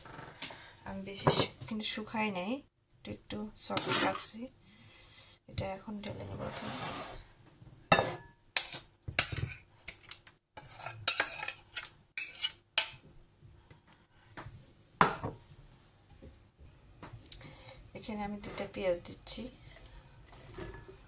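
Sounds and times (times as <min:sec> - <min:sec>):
metal spoon scraping saucepan: 0:03.6 - 0:04.3, 0:06.2 - 0:07.2, 0:07.9 - 0:09.6, 0:10.6 - 0:12.6.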